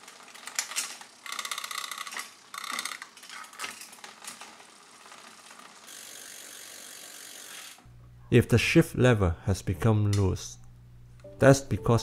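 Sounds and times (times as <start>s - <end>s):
bicycle chain clicks and knocks: 0.0s - 7.8s
bicycle freewheel ratcheting: 0.0s - 7.9s.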